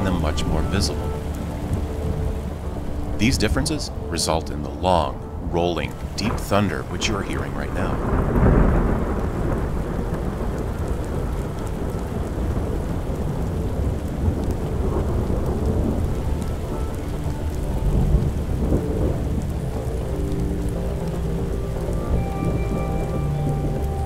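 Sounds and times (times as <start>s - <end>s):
steady rain: 0.0s - 24.0s
deep rolling thunder: 5.3s - 24.0s.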